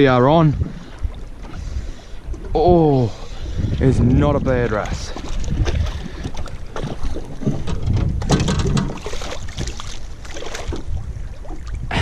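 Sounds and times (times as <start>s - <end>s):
water slapping boat hull: 0.0s - 12.0s
wind buffeting microphone: 0.0s - 12.0s.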